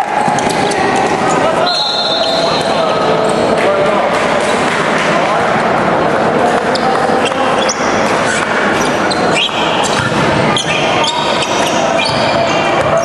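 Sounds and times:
echoing gymnasium hubbub: 0.0 - 13.0
sneakers squeaking on court floor: 6.6 - 13.0.

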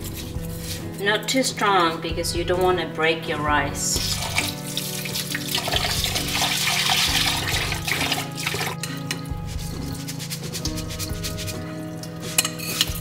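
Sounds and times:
background music with held notes: 0.0 - 13.0
water splashing: 4.0 - 8.8
tap water running into bowl: 4.1 - 8.8.

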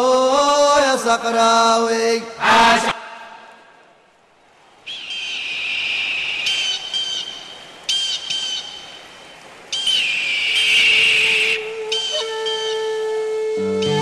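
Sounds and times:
high whistled melody: 9.8 - 14.0.

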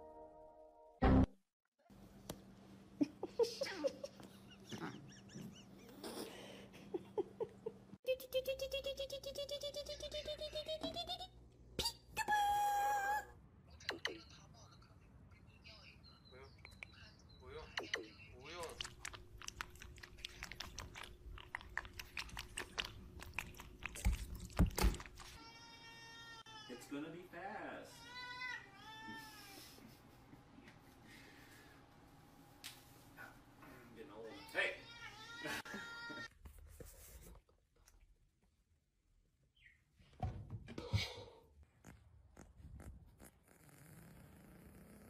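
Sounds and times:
rabbit chewing wet crunching bites: 18.6 - 25.4.

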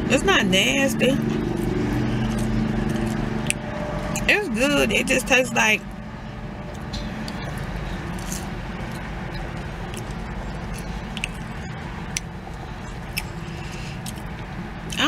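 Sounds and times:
low rumble inside car: 0.0 - 15.0
person chewing fries: 1.3 - 4.3, 6.7 - 15.0
faint mouth clicks: 9.9 - 11.5.

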